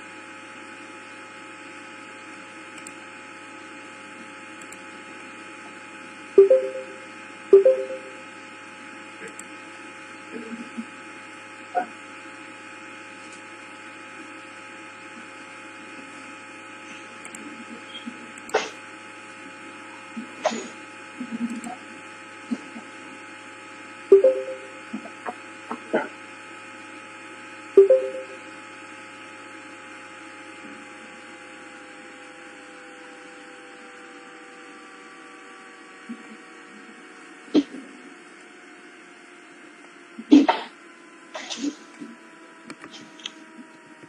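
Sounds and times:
steady electrical hum: 2.8s - 14.5s
faint tones sinking in pitch: 6.4s - 8.2s, 24.1s - 25.0s.

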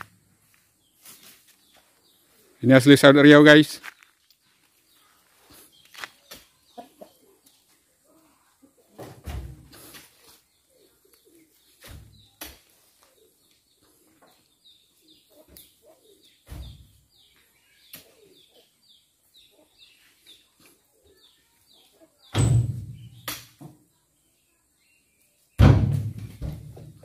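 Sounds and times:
fruit bunches thudding into truck bed: 9.0s - 9.7s, 25.6s - 27.0s
bird chirping: 10.2s - 27.0s.

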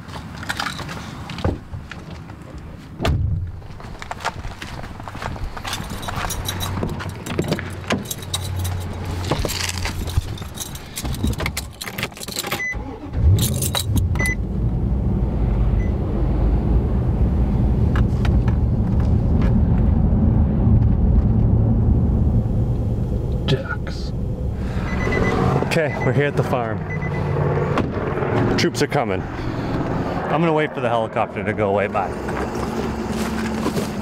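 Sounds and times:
truck engine starting and running: 4.8s - 34.0s
keys jangling: 5.6s - 12.7s, 13.3s - 14.1s
short beeps: 24.8s - 26.2s, 26.9s - 27.4s.

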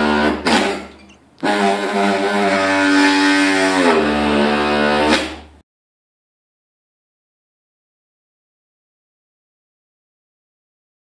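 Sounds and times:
power cutting tool buzzing: 0.0s - 5.0s.

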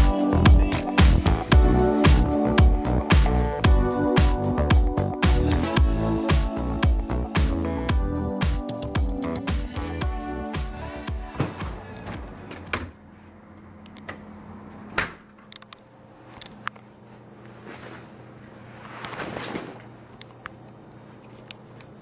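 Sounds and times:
background music: 0.0s - 12.9s
rustling: 17.4s - 20.0s.

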